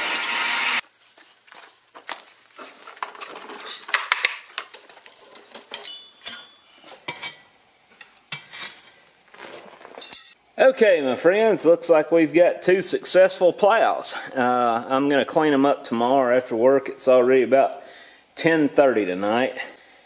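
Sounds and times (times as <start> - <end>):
light metallic clinks: 4.7 - 7.4.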